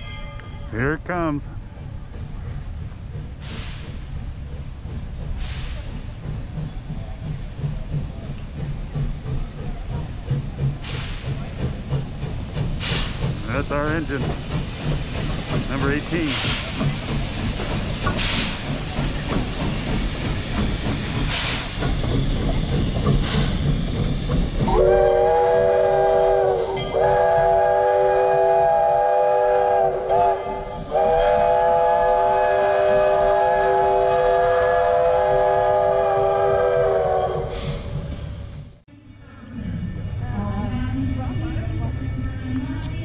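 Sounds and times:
locomotive exhaust puffs: 1.4 - 38.8
steam hissing: 1.9 - 38.4
steam whistle blasts: 24.7 - 37.8.

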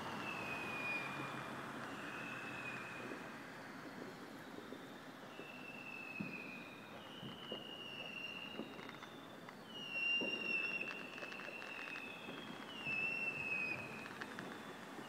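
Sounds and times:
whistling firework rockets: 0.0 - 15.0
distant firework thuds and crackles: 3.0 - 5.6, 6.2 - 15.0.

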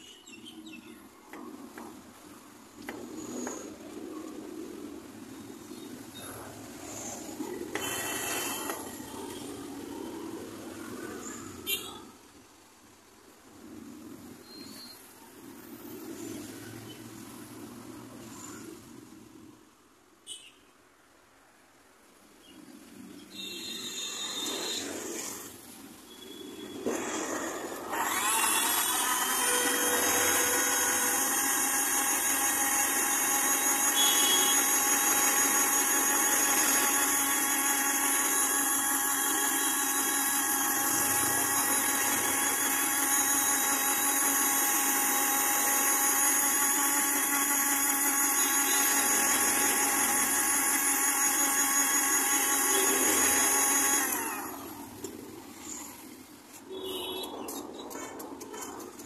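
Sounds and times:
blender motor whining: 2.8 - 4.8, 5.7 - 11.8, 23.6 - 57.9.

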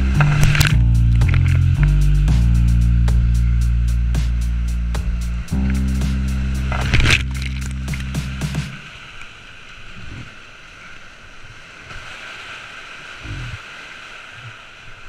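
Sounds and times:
dull low thumps: 0.0 - 8.8
whitewater rushing: 4.4 - 15.0.

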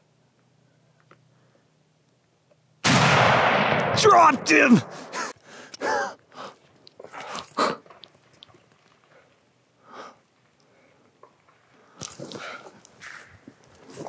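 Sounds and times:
person exclaiming and gasping: 4.0 - 6.2.

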